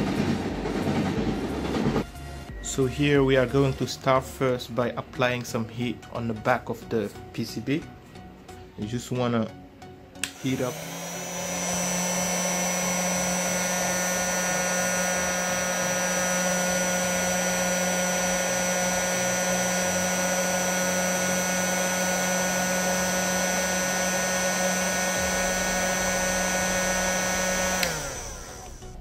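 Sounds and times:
heat gun blowing with whine: 10.2 - 29.0.

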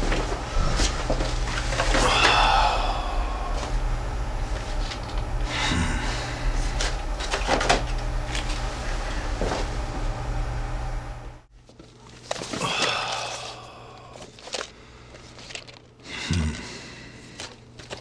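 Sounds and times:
electrical hum: 0.0 - 18.0
plastic cassette cases clattering: 14.2 - 15.9, 17.4 - 18.0.

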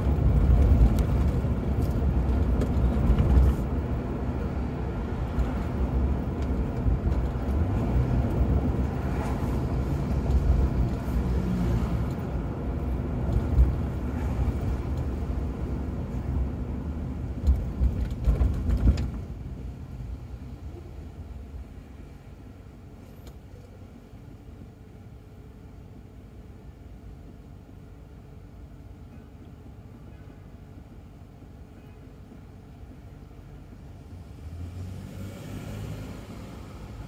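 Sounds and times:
thumps from road bumps: 0.0 - 3.9, 17.3 - 19.4
car engine low rumble: 0.0 - 37.0.

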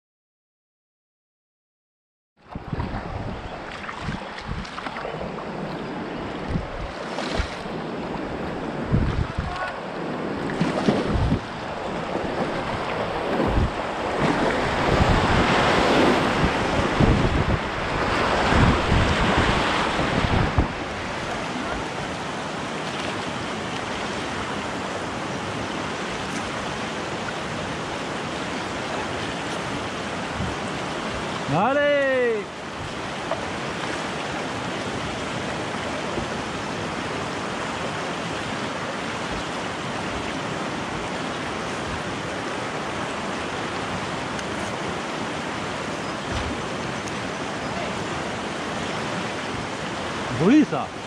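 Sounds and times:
rushing river water: 2.4 - 51.0
wind buffeting microphone: 2.5 - 28.3, 29.1 - 31.4.

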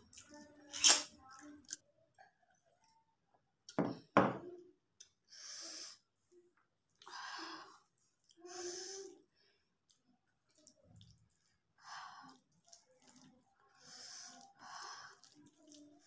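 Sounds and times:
wet squishing of hand mixing rice: 6.0 - 16.0.

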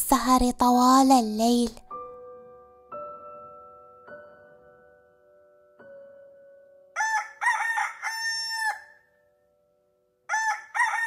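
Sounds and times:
rooster crowing: 7.0 - 9.0, 10.3 - 11.0.

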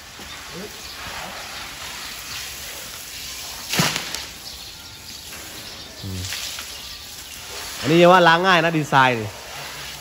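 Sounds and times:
hose water spraying on hide: 0.0 - 10.0
sharp slap: 3.7 - 4.3.

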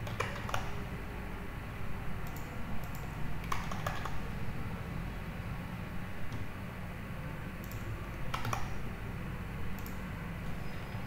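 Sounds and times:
keyboard typing: 0.0 - 0.8, 2.2 - 4.2, 7.6 - 8.8, 9.8 - 10.0
steady low hum: 0.0 - 11.0.

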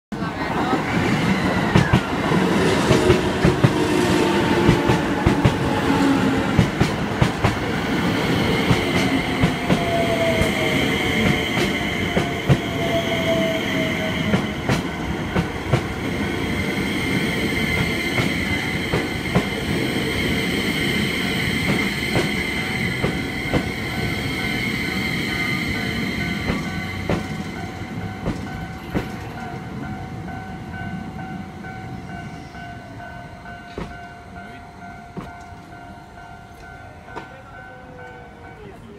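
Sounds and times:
train wheels clacking over rail joints: 2.8 - 3.8, 6.4 - 7.8, 21.6 - 23.7, 26.4 - 29.5
level crossing warning bell: 7.6 - 19.2, 22.3 - 38.9.

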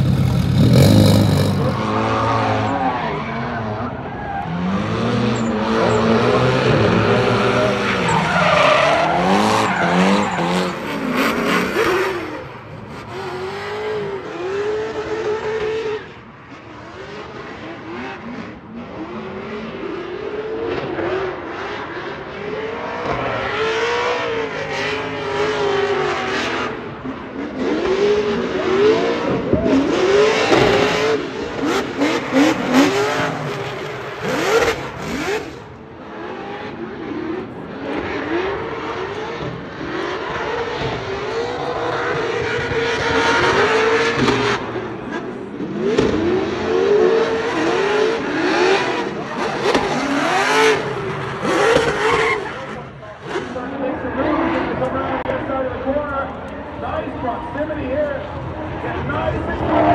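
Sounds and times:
tyres squealing and skidding: 0.0 - 16.0, 46.2 - 54.8
car engines revving: 0.0 - 59.9.

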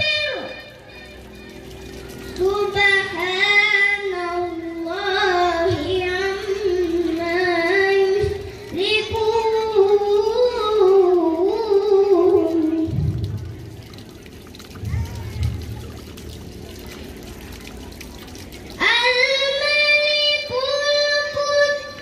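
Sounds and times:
boy reciting melodically: 0.0 - 0.8, 2.3 - 13.3, 18.7 - 22.0.

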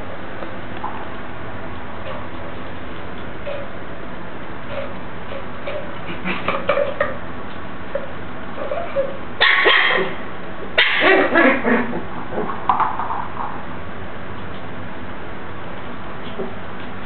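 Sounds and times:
puppy yapping: 8.6 - 10.2, 10.8 - 12.5.

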